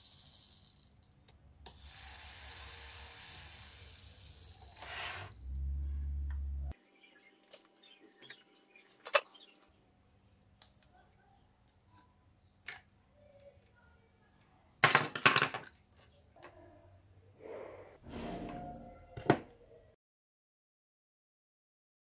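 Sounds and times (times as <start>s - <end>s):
low hum: 5.3s - 6.8s.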